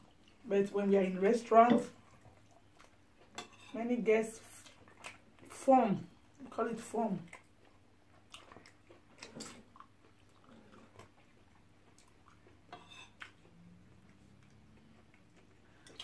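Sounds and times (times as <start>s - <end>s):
people chewing: 1.8s - 3.5s, 4.5s - 5.6s, 7.2s - 16.0s.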